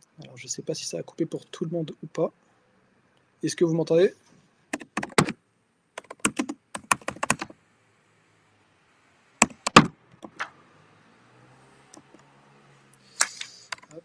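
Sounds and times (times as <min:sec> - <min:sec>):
keyboard typing: 0:04.7 - 0:05.4, 0:06.0 - 0:07.5, 0:09.4 - 0:10.5.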